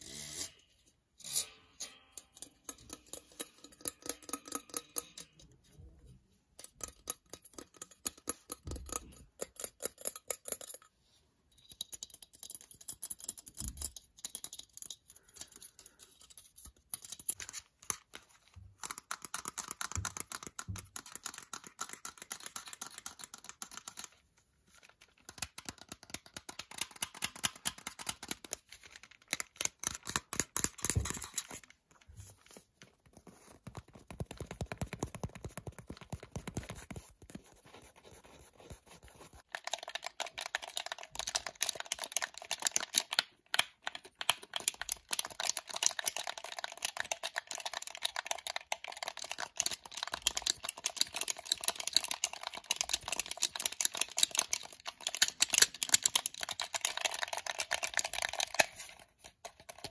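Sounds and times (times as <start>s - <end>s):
tapping and scratching on electronics: 11.7s - 24.2s, 32.8s - 59.9s.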